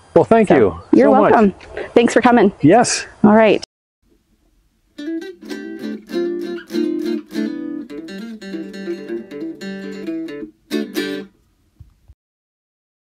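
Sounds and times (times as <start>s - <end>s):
guitar chords: 4.9s - 11.4s.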